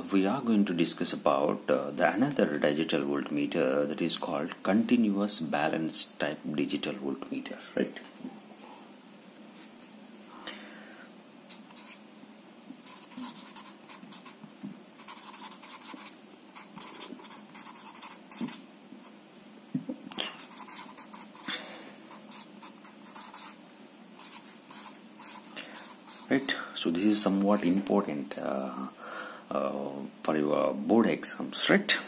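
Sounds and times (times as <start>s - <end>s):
marker writing on paper: 11.5s - 12.0s, 12.8s - 19.2s, 20.4s - 21.5s, 22.1s - 23.6s, 24.2s - 26.5s.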